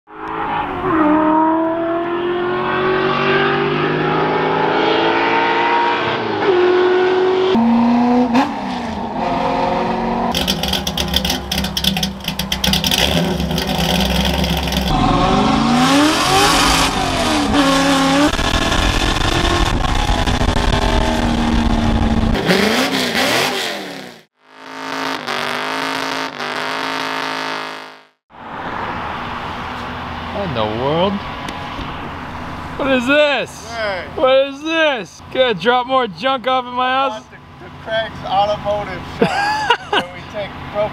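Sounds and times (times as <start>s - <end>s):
pickup truck engine revving: 6.6s - 27.9s.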